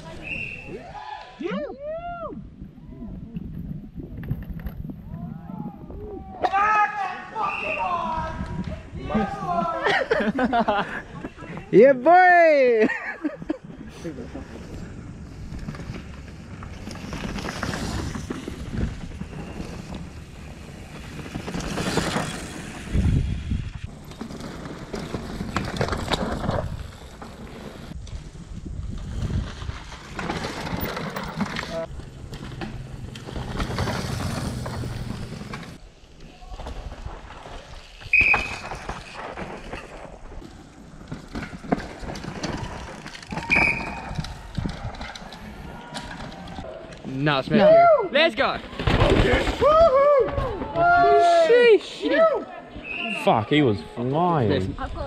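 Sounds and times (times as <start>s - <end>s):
bikes clicking and rattling: 3.4s - 55.0s
tyres skidding on loose dirt: 13.9s - 51.6s
disc brakes squealing: 38.0s - 39.1s, 43.3s - 44.2s.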